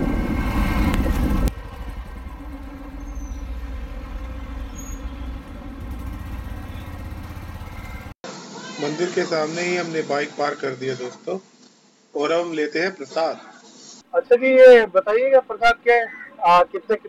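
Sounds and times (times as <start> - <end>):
motorcycle engine rumbling: 0.0 - 8.2.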